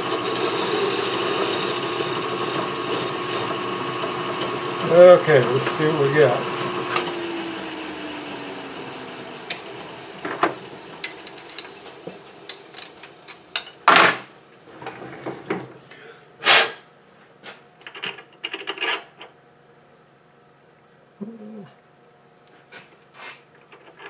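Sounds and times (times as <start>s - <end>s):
metal lathe spinning down: 0.0s - 12.9s.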